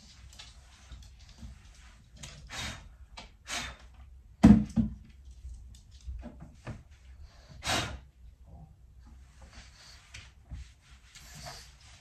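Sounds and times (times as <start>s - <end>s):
rustles of objects handled: 0.0s - 2.5s.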